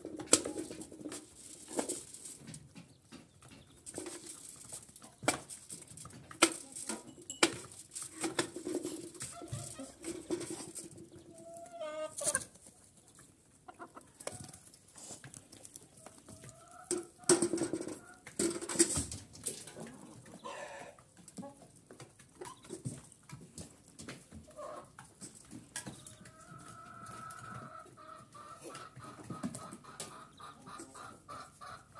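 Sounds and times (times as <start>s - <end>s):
chickens clucking: 0.0s - 31.9s.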